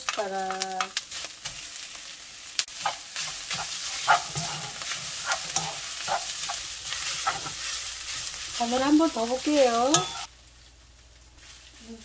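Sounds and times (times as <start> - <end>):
vegetables sizzling in a wok: 0.0 - 12.0
spatula scraping and knocking pan: 2.7 - 10.3.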